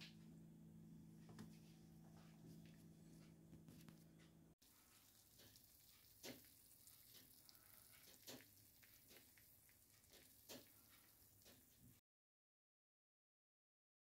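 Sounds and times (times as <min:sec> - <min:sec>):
food crackling in dish: 0:04.6 - 0:12.0.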